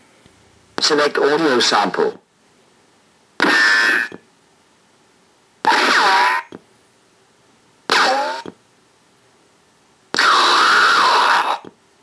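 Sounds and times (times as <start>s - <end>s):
sound effects from small speaker: 3.4s - 4.2s, 5.7s - 6.6s, 7.9s - 8.6s.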